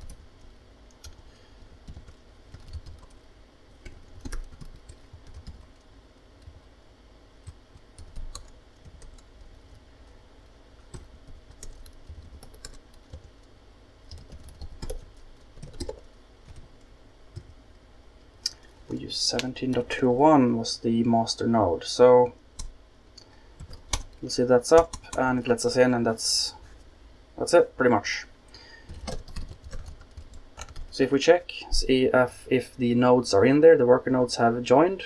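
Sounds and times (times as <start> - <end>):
computer keyboard typing: 0.9 - 3.2, 3.8 - 6.6, 7.4 - 9.8, 10.8 - 17.5, 22.6 - 25.3, 28.7 - 30.9.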